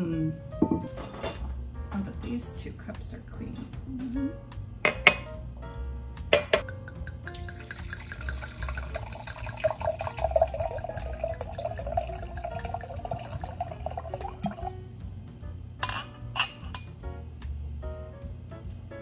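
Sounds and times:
wine pouring into a glass: 6.6s - 14.8s.

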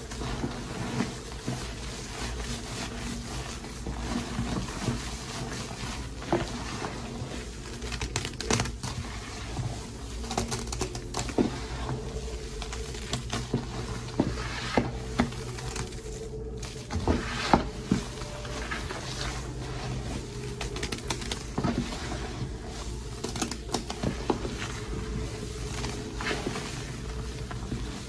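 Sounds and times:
small crackles and pops of foam: 0.0s - 17.0s, 20.3s - 28.0s
hands squishing soap paste: 0.0s - 28.0s.

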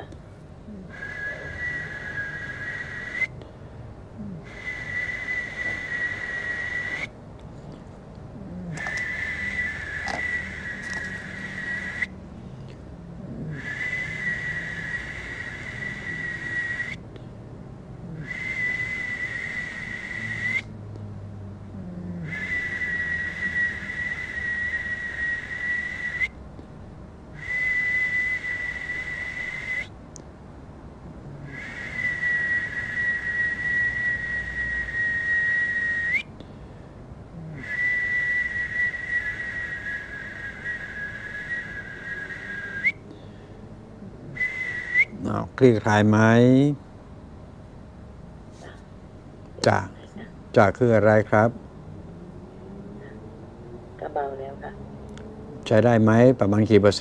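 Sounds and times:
high whistled notes: 1.0s - 3.4s, 4.5s - 7.2s, 8.8s - 12.2s, 13.6s - 17.0s, 18.3s - 20.7s, 22.3s - 26.4s, 27.4s - 29.9s, 31.5s - 36.3s, 37.6s - 43.0s, 44.3s - 45.4s.

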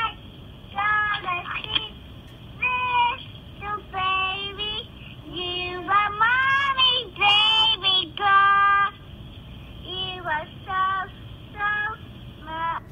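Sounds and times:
toddler singing lullaby: 5.4s - 8.9s.

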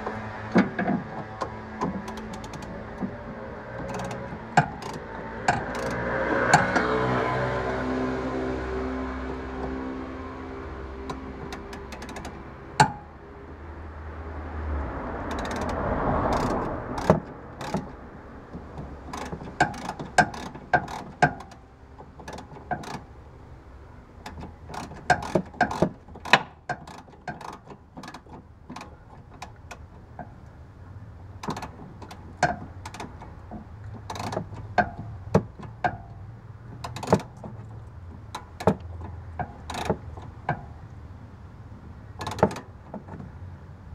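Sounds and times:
wrench clicking on metal: 0.6s - 7.0s, 11.1s - 13.1s, 15.2s - 23.2s, 24.2s - 30.4s, 31.4s - 40.8s, 42.1s - 42.7s.

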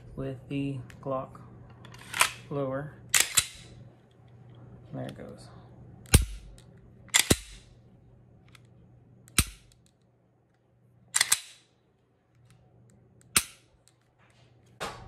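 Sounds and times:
pistol slide racking clacks: 3.1s - 3.7s, 6.1s - 7.6s, 9.3s - 9.9s, 11.2s - 11.7s, 13.2s - 14.0s
pistol trigger clicks: 9.3s - 9.9s, 11.2s - 11.7s, 13.2s - 14.0s.

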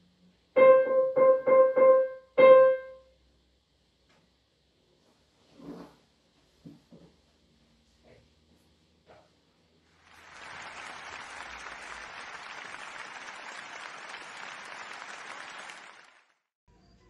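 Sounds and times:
applause: 9.9s - 16.5s.

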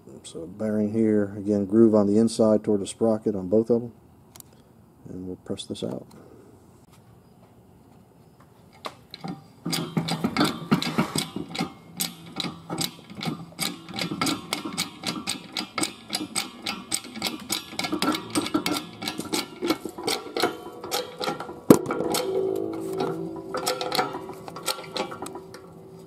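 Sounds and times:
press clicking metallically: 9.0s - 26.0s.

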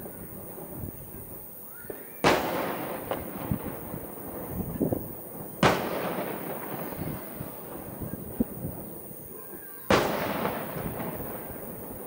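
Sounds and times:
firework shells bursting: 0.0s - 9.0s, 9.9s - 12.0s
loud sharp firework boom: 1.8s - 8.8s, 9.9s - 12.0s.

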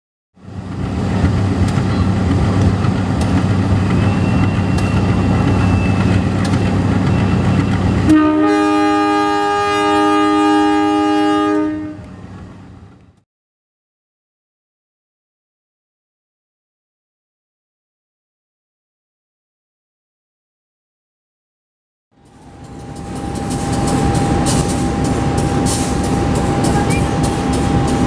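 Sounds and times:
diesel locomotive engine rumbling: 0.4s - 13.2s, 22.2s - 28.0s
locomotive horn blast: 8.0s - 12.2s.

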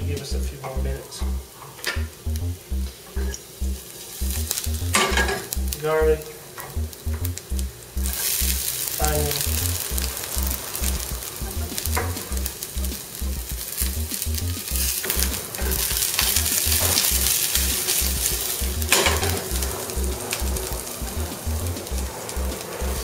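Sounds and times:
background music with bass line: 0.0s - 6.2s, 6.8s - 23.0s
garlic and onion sizzling in oil: 0.0s - 23.0s.

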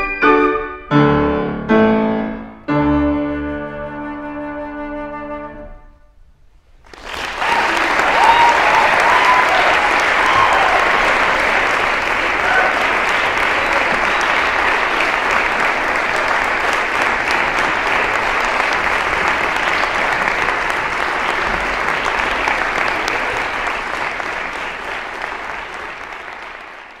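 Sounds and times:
audience applauding: 6.8s - 27.0s.

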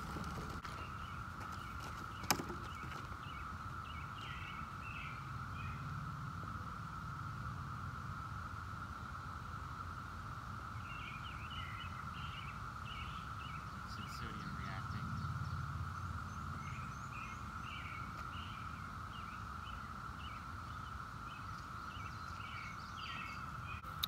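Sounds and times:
birds calling: 0.0s - 5.9s, 10.8s - 24.0s.

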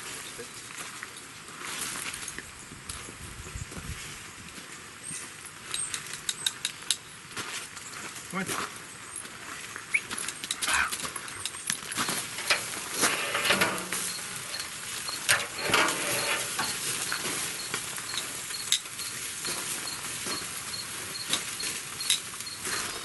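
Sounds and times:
metal tongs clicking on grate: 12.3s - 16.9s
chicken sizzling on a grill: 12.4s - 23.0s.

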